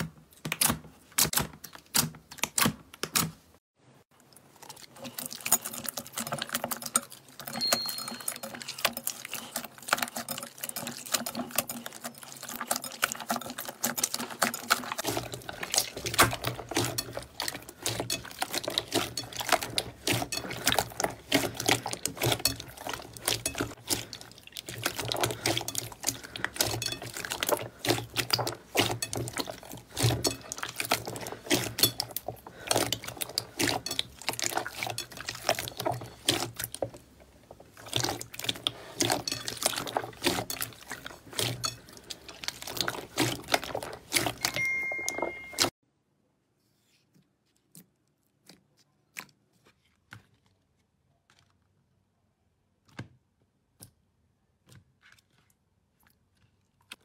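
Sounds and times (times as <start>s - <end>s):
slime squelching and popping: 4.2s - 45.7s.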